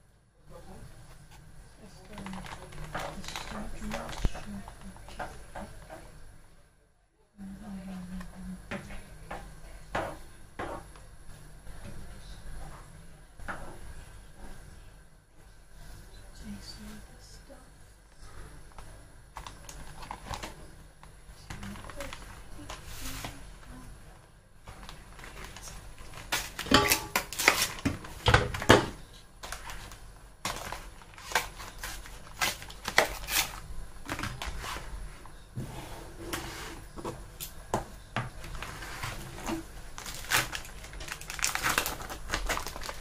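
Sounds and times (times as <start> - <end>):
plastic trays and cardboard rustling: 1.1 - 6.1, 18.8 - 20.8, 21.4 - 23.8, 24.7 - 37.4, 38.3 - 43.0.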